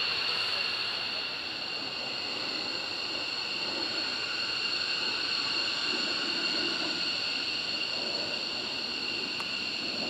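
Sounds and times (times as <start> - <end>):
jet engines whining: 0.0 - 10.0.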